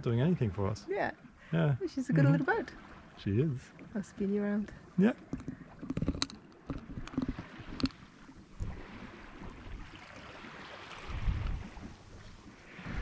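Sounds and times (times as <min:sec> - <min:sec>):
water hissing along hull: 0:06.9 - 0:13.0
wind buffeting microphone: 0:10.9 - 0:13.0.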